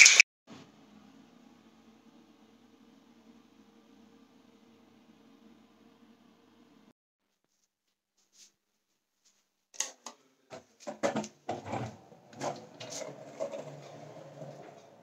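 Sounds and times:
skateboard rolling on wooden floor: 10.8 - 15.0.

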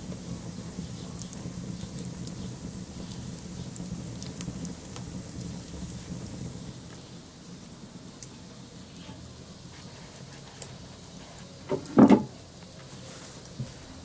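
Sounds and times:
sharp crackles and ticks: 0.0 - 7.1, 8.2 - 8.4.

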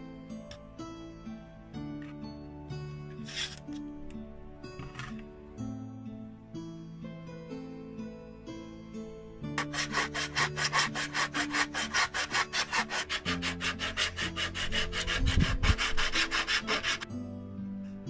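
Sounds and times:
hand sanding wood: 9.6 - 17.1.

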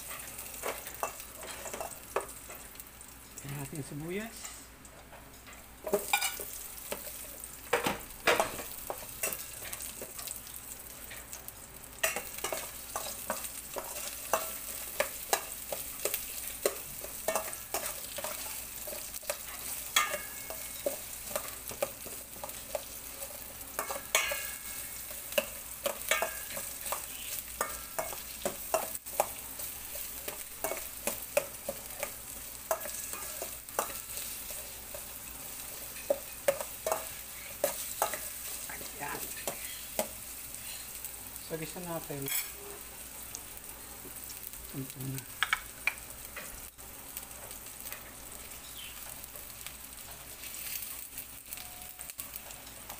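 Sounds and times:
metal spoon scraping a pan: 0.0 - 2.6, 5.8 - 7.3, 12.0 - 41.0, 42.2 - 42.8
onions sizzling in hot oil: 0.0 - 52.9.

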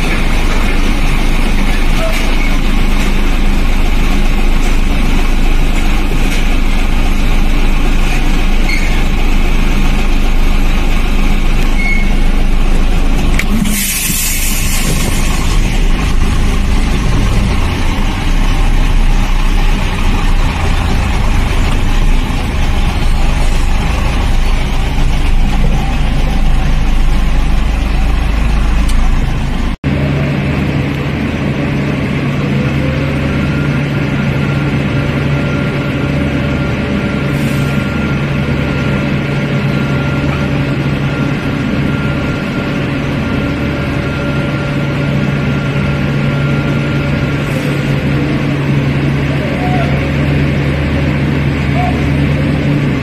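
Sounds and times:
heavy diesel engines running: 0.0 - 53.0
air brake hiss: 13.6 - 15.2.

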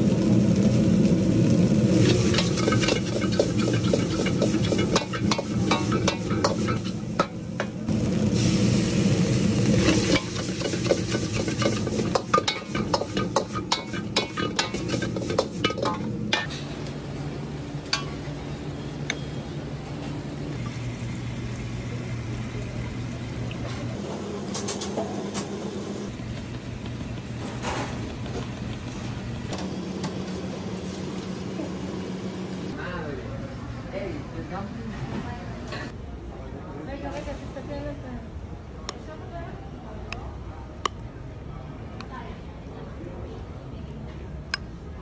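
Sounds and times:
food sizzling: 0.0 - 19.0, 20.5 - 32.8
metal ladle scraping a wok: 2.0 - 7.1, 9.7 - 16.6.

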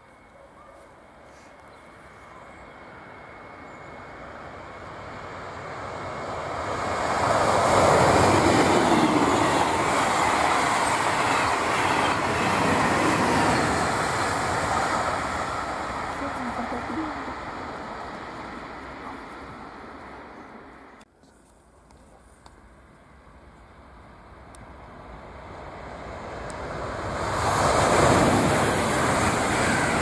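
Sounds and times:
passenger train passing on rails: 0.0 - 21.1, 22.6 - 30.0.

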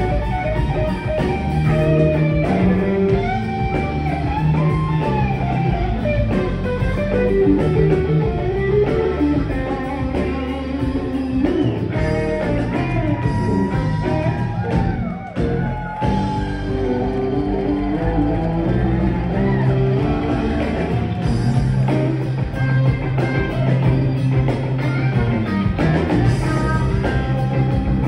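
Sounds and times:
electric guitar line bending: 0.0 - 28.0
live rock band playing: 0.0 - 28.0.

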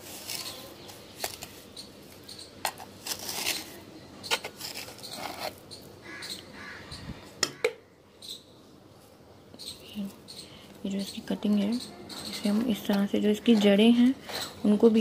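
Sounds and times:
stick scraping soil: 0.0 - 5.9.

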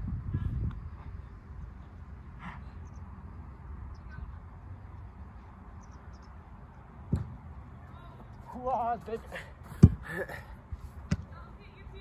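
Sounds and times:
football being kicked: 9.6 - 10.1, 11.1 - 11.3.

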